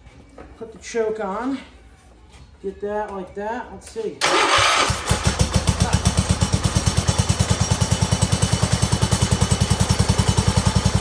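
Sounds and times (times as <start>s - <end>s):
garden tractor engine running: 4.2s - 11.0s.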